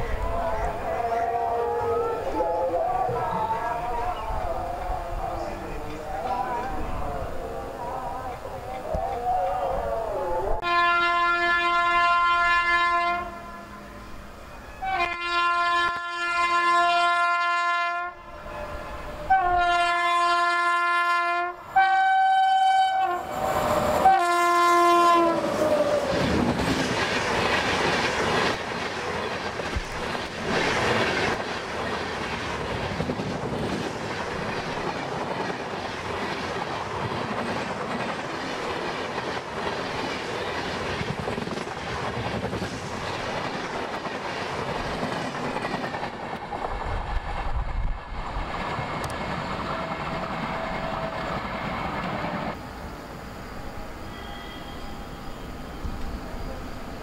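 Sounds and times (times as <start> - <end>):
train passing with wheels clacking: 0.0 - 9.6, 22.4 - 57.0
train horn blasts: 10.6 - 25.8, 54.0 - 55.4.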